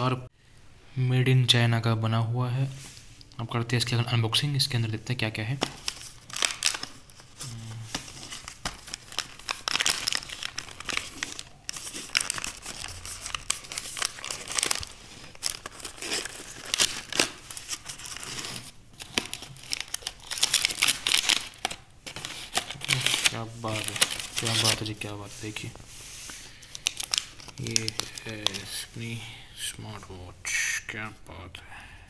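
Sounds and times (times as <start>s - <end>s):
cardboard packaging rustling and crinkling: 5.6s - 29.0s.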